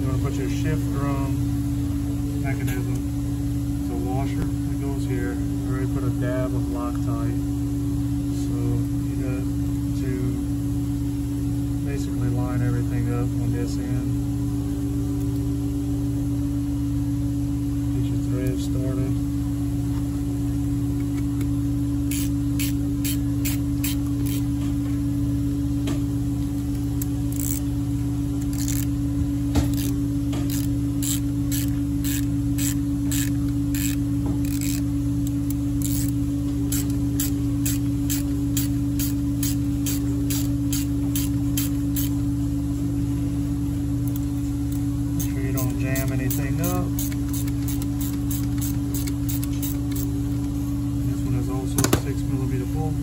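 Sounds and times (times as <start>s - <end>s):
workshop hum: 0.0s - 53.0s
screwdriver clicking on metal: 22.1s - 24.4s, 26.7s - 27.6s, 29.7s - 42.1s, 44.1s - 50.1s.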